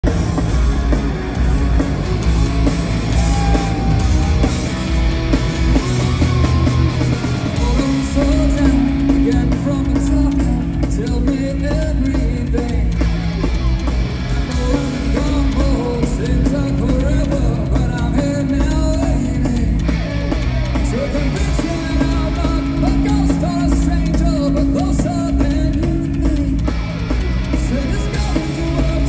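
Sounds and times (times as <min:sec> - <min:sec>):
live rock band playing: 0:00.0 - 0:29.0
person singing: 0:05.7 - 0:13.0, 0:14.3 - 0:26.7, 0:27.5 - 0:29.0.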